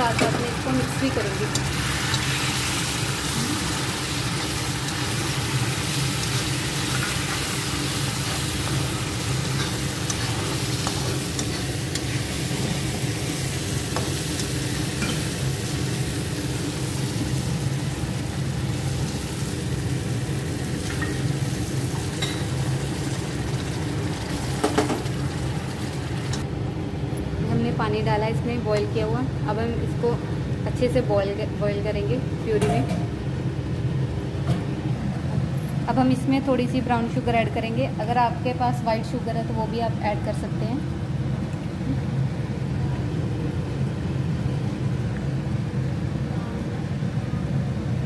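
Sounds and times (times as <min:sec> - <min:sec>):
masala sizzling in hot oil: 0:00.0 - 0:26.4.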